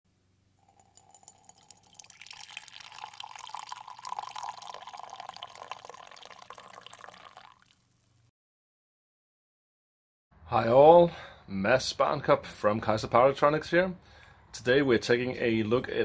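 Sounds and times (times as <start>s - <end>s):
coffee pouring into a ceramic mug: 0.6s - 7.9s.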